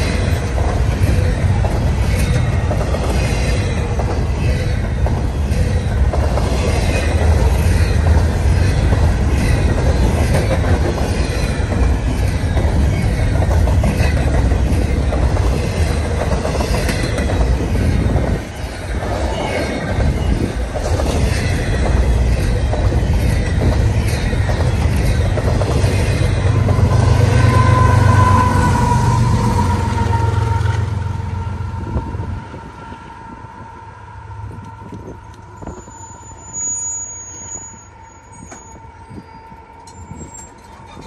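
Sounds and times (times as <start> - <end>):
freight train wheels rumbling: 0.0 - 41.0
locomotive steady tone: 0.0 - 41.0
wheel squeal: 35.5 - 41.0.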